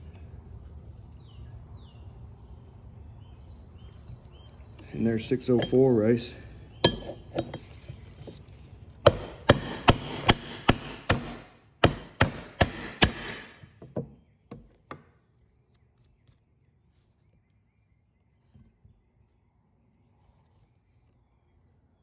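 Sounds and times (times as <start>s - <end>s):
hammer striking steel: 5.6s - 6.0s, 6.8s - 7.6s, 9.1s - 13.6s.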